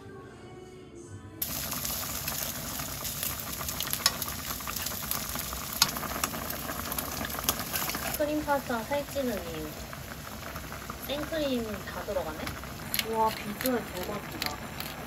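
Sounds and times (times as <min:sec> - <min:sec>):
soft music: 0:00.0 - 0:01.5
bacon sizzling in frying pan: 0:01.4 - 0:15.0
crackling pops: 0:01.4 - 0:15.0.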